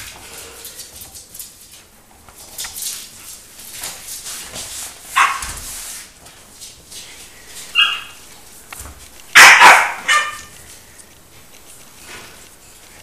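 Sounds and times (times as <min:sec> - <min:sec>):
puppies yipping and barking: 0:07.7 - 0:08.2, 0:09.4 - 0:10.5.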